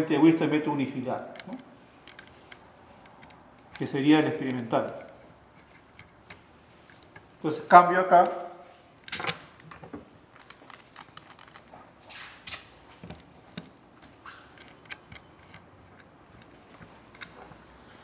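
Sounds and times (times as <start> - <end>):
light clicks and taps of wire leads: 1.3 - 7.3, 12.5 - 17.6.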